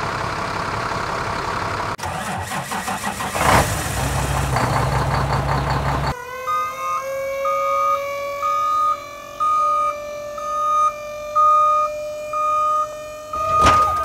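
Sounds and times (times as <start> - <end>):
engine cranking and idling: 0.0 - 6.2, 13.3 - 14.0.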